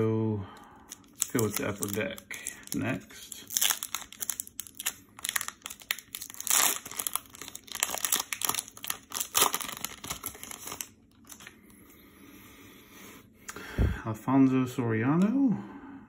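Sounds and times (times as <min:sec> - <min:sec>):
foil wrapper tearing and crinkling: 0:01.0 - 0:11.5.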